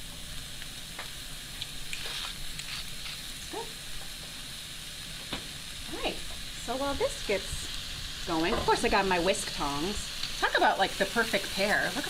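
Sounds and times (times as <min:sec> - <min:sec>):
vegetables sizzling in oil: 0:00.0 - 0:12.0
small crackles: 0:00.1 - 0:12.0.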